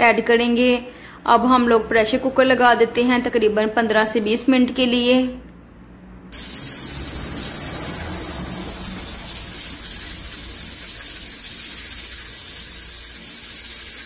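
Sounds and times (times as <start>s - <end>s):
pressure cooker hissing: 6.3s - 14.0s.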